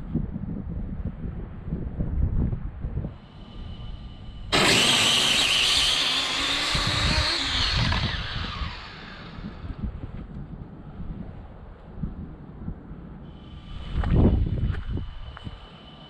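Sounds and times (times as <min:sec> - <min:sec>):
wind rumble on microphone: 0:00.0 - 0:04.6, 0:05.8 - 0:16.0
rc car motor whine: 0:03.2 - 0:10.0.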